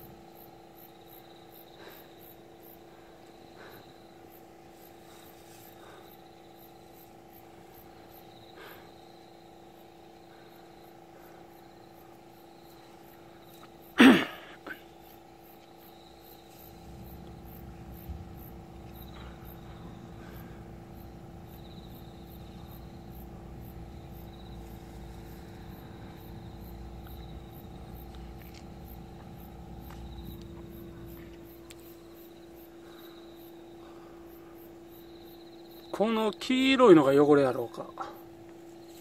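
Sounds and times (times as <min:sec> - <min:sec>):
high insect trill: 0:00.0 - 0:39.0
insects chirping: 0:00.0 - 0:39.0
steady hum: 0:00.0 - 0:39.0
low rumble: 0:16.6 - 0:32.2.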